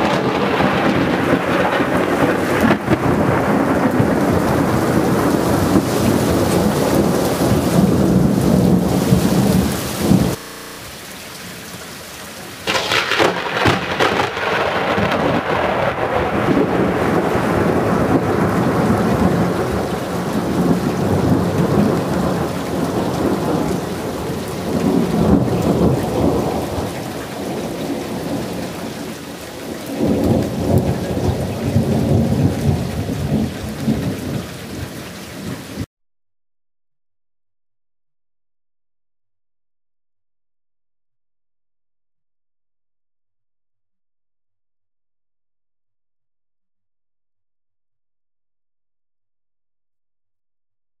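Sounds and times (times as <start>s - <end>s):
rolling thunder rumbling: 0.0s - 10.4s, 12.6s - 35.9s
sharp thunder crack: 0.0s - 10.4s, 12.6s - 35.9s
rain falling: 0.0s - 35.9s.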